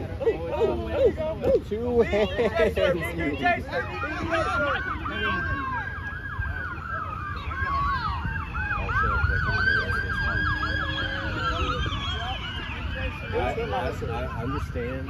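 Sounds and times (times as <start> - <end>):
fast yelp siren: 2.8 - 15.0
wailing siren: 3.0 - 15.0.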